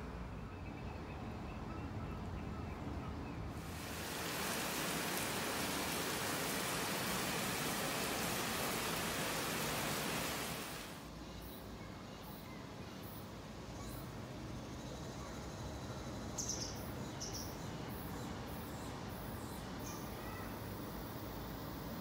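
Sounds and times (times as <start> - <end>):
steady rain falling: 3.6 - 11.0.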